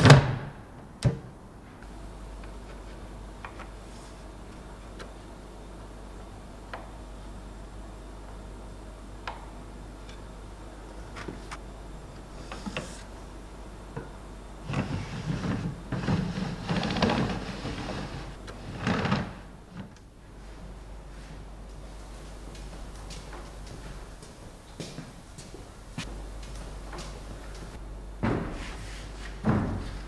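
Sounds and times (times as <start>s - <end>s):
rattling wooden sliding: 14.7s - 19.9s.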